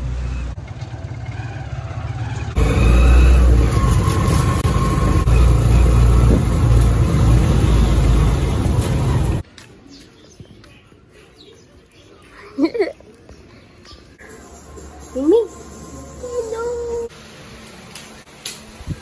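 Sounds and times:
motorcycle engine rumble: 0:00.0 - 0:09.4.

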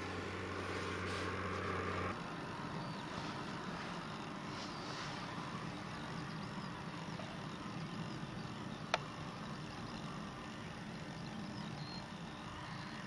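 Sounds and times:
outdoor background rumble: 0:00.0 - 0:13.0
faint high chirps: 0:04.1 - 0:13.0.

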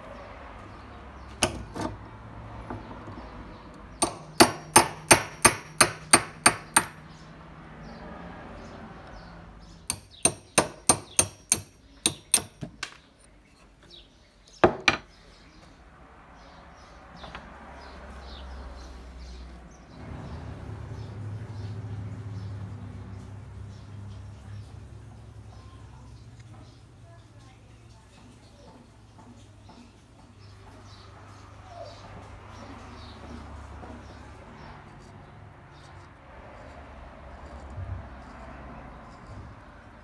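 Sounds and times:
hammer tapping steel punch: 0:01.4 - 0:01.9, 0:04.0 - 0:07.0, 0:09.9 - 0:12.8.

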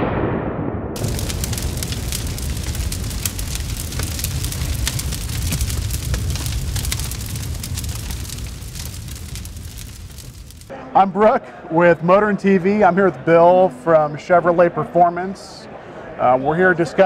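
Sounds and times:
fire crackling and popping: 0:01.0 - 0:10.7.

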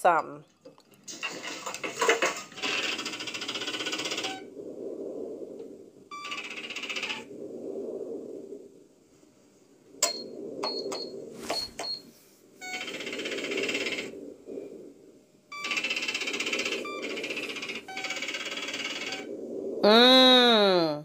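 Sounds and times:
rapid electronic chattering and beeping: 0:01.2 - 0:04.5, 0:06.1 - 0:07.3, 0:12.6 - 0:14.1, 0:15.5 - 0:19.3
low steady ship hum: 0:02.2 - 0:19.8
short high beeps: 0:15.5 - 0:15.9.

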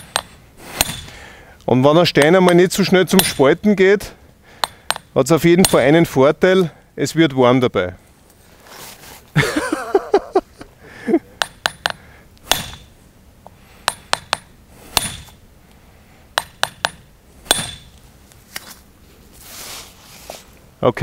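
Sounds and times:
hammer tapping steel chisel: 0:00.0 - 0:01.1, 0:04.6 - 0:05.8, 0:11.4 - 0:12.9, 0:13.8 - 0:15.4.

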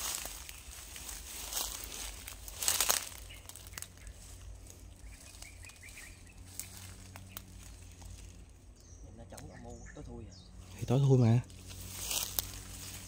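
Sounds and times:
rustling and crunching: 0:00.0 - 0:08.8, 0:10.6 - 0:13.0
faint high chirps: 0:02.6 - 0:10.9.

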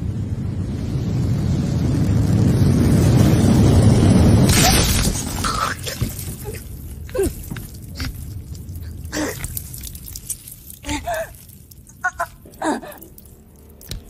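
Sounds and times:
steady low rumble: 0:00.0 - 0:14.0
person gasping and groaning: 0:05.4 - 0:10.0, 0:10.7 - 0:13.3.

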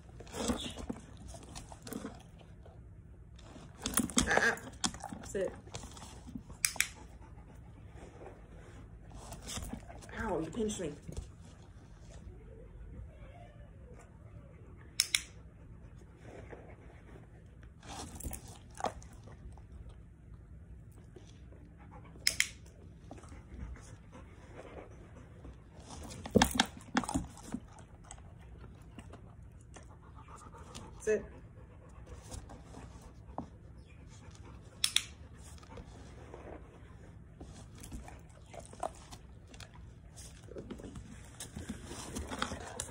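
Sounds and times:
dog chewing a treat: 0:37.2 - 0:42.9.

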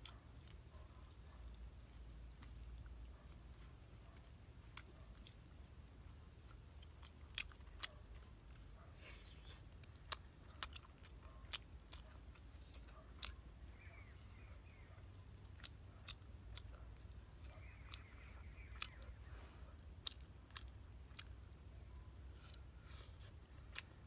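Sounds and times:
faint steady high tone: 0:00.3 - 0:20.1
lip smacks and mouth clicks: 0:15.5 - 0:19.2, 0:19.9 - 0:21.7.

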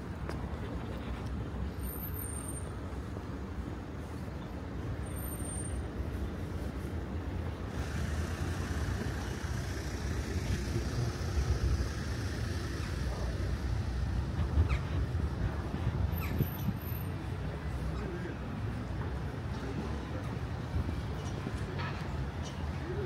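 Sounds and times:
street traffic rumble: 0:00.0 - 0:23.0.

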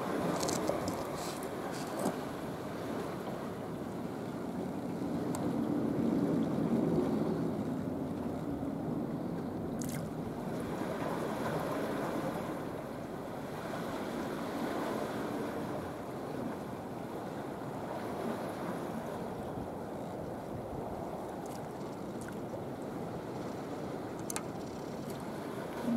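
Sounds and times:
lapping water: 0:09.8 - 0:10.1.

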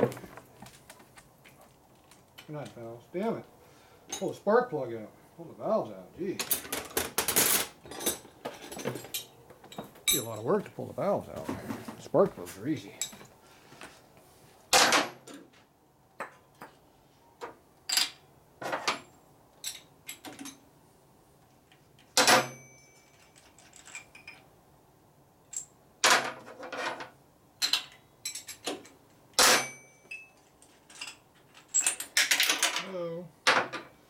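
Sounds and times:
metal tools clinking on engine: 0:06.4 - 0:10.5, 0:12.8 - 0:13.3, 0:18.8 - 0:20.7, 0:22.2 - 0:24.5, 0:27.6 - 0:32.9.

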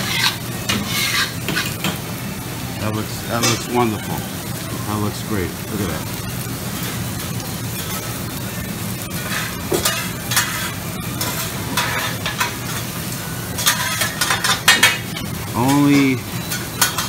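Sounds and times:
metal spatulas scraping and clanking: 0:00.0 - 0:01.9, 0:09.2 - 0:12.9, 0:13.6 - 0:15.0, 0:15.6 - 0:17.0
food sizzling on griddle: 0:00.0 - 0:17.0.

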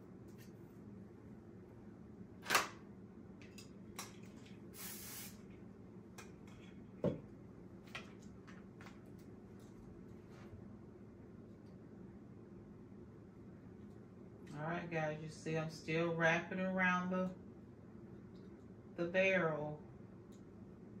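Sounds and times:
faint steady hum: 0:00.0 - 0:21.0
soft hiss: 0:04.7 - 0:05.5.

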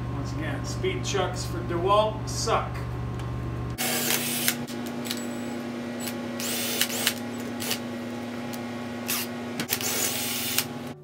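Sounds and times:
steady low hum: 0:00.0 - 0:11.0
cordless drill whining: 0:03.8 - 0:05.3, 0:06.0 - 0:07.8, 0:09.1 - 0:10.9.

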